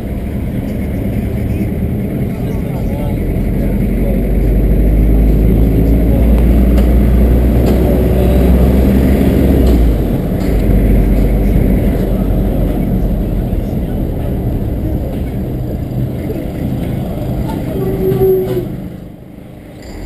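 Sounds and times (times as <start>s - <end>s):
car engine running: 0.0s - 17.9s
heavy low rumble: 0.0s - 20.0s
road noise: 0.0s - 20.0s.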